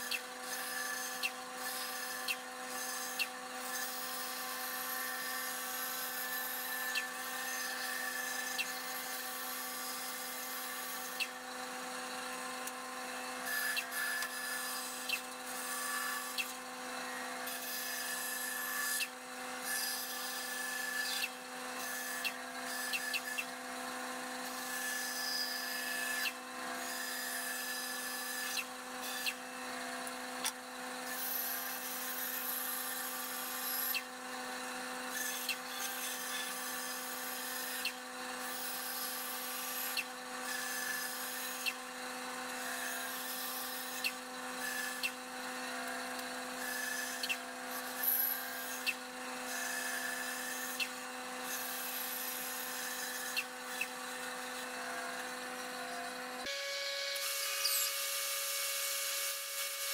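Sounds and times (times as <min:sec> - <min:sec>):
bandsaw humming: 0:00.0 - 0:34.1, 0:35.1 - 0:59.9
saw blade cutting wood: 0:00.0 - 0:59.9.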